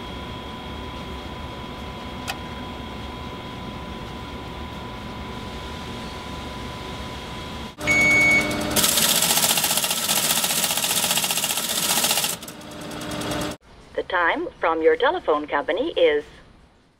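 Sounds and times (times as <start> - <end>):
high modem tone: 0.0 - 9.5
equipment hum: 0.0 - 16.9
teleprinter rattling: 8.5 - 13.6.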